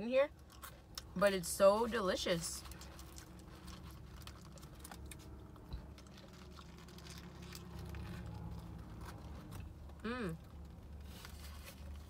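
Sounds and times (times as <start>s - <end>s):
low steady hum: 0.0s - 12.0s
person chewing: 0.4s - 1.1s, 2.6s - 12.0s
paper wrapper crinkling: 2.6s - 9.5s.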